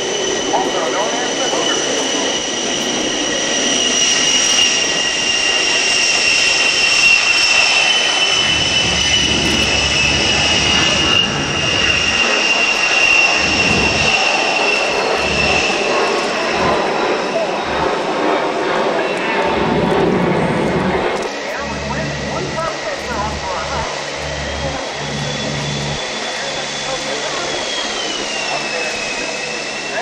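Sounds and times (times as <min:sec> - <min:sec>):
jet engines at takeoff: 0:00.0 - 0:30.0.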